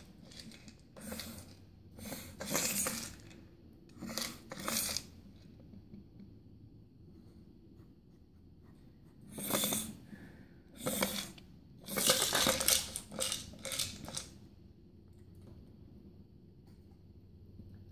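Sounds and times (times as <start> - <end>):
treat toy rattling on wooden floor: 0.0 - 1.6, 2.4 - 3.4, 4.0 - 5.1, 10.8 - 14.4.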